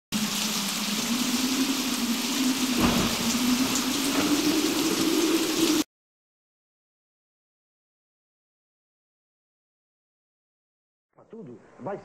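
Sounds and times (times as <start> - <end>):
steady rain: 0.1 - 5.9
thunder rumble: 0.2 - 5.8
low droning tone rising: 0.7 - 5.8.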